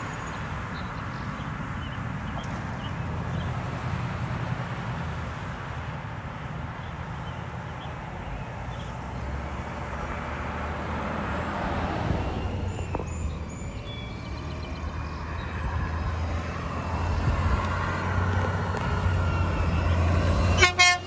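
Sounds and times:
diesel truck engine running: 9.0s - 21.0s
pickup truck driving past: 9.0s - 21.0s.

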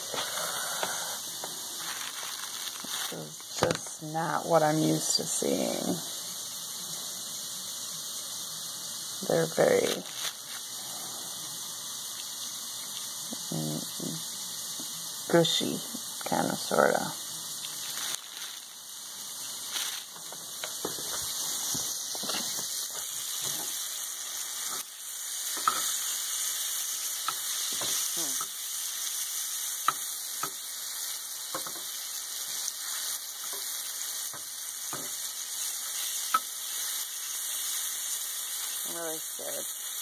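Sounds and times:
mushrooms sizzling in butter: 0.0s - 40.0s.

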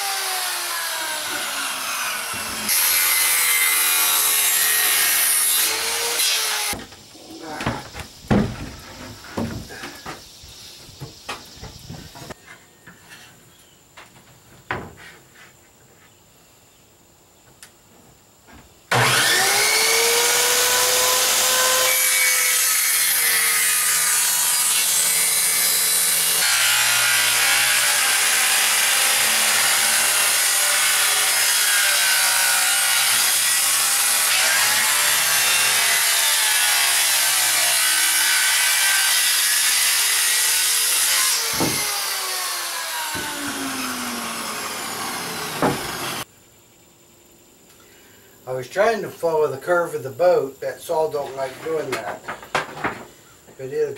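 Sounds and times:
jigsaw cutting plywood: 0.0s - 6.8s, 18.9s - 46.2s.

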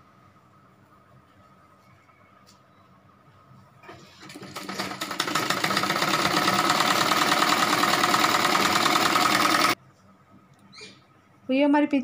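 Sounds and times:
sewing machine running: 3.8s - 9.8s.

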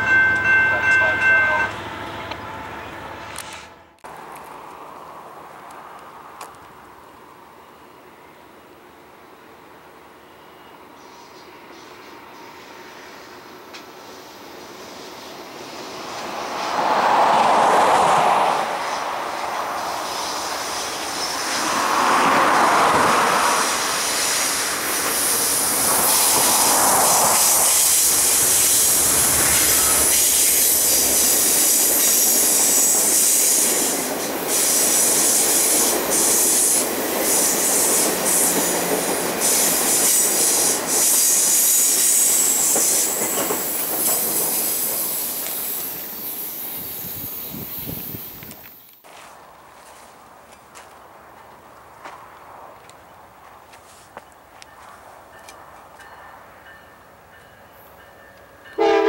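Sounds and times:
diesel locomotive rumble: 0.0s - 7.7s, 16.8s - 32.8s
train wheels flange squeal: 24.0s - 48.8s.

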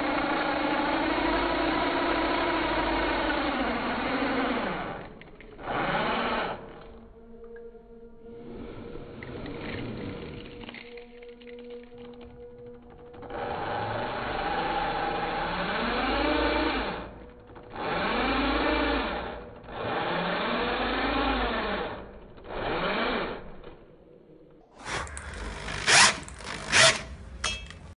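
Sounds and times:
slowed drill motor: 0.0s - 27.8s.

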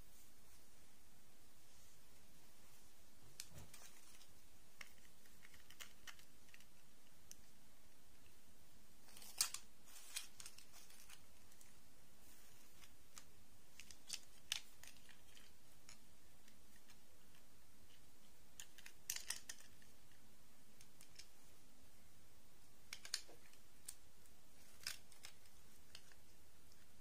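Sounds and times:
low steady hiss: 0.0s - 27.0s
plastic dolls clicking and tapping: 4.8s - 7.5s, 13.1s - 20.2s, 22.9s - 24.0s.

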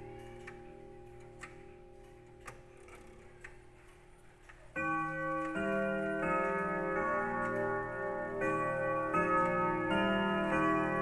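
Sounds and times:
faint clock ticking: 0.0s - 11.0s
clock chime melody: 4.7s - 11.0s.

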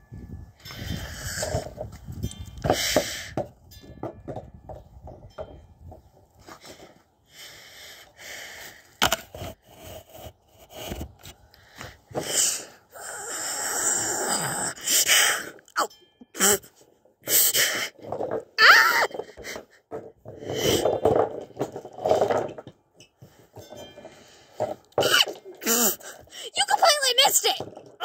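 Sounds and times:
person huffing and snarling: 12.2s - 15.5s.

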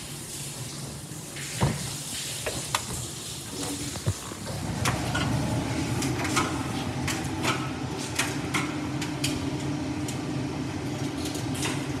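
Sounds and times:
tumble dryer humming: 4.0s - 10.9s
light clicks in dryer: 6.0s - 10.3s.

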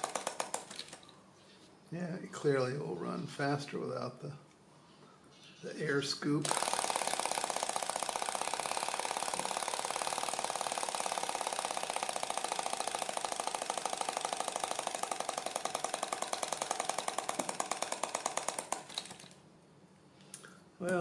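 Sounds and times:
engine fast even ticking: 6.5s - 19.3s.

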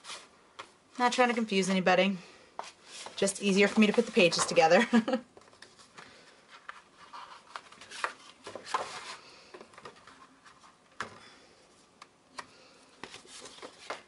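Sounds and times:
paper rustling and sliding: 0.0s - 0.3s, 2.6s - 4.6s, 5.4s - 10.8s, 12.9s - 14.0s.

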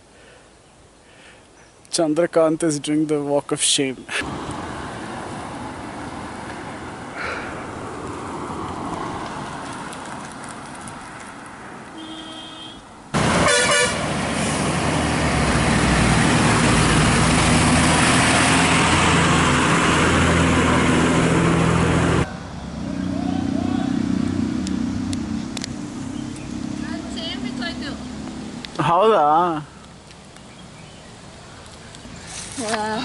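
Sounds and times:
open road background noise: 0.0s - 33.0s
loud vehicle horn blast: 11.9s - 12.8s, 13.4s - 14.1s
bus engine running: 13.2s - 28.8s.

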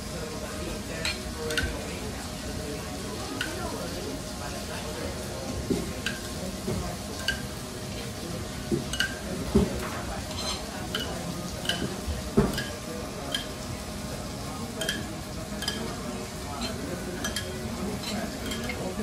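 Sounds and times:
faint sizzle: 0.0s - 19.0s
metal spoon clinking on pot: 14.8s - 15.9s, 16.6s - 18.8s.

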